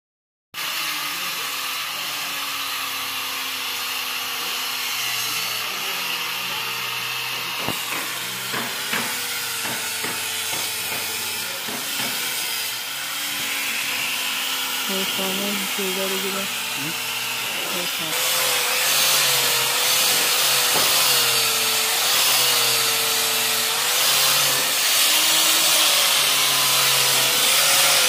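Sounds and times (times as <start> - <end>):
electric sander on wood: 0.6 - 28.0
sharp clicks and knocks: 7.6 - 12.2.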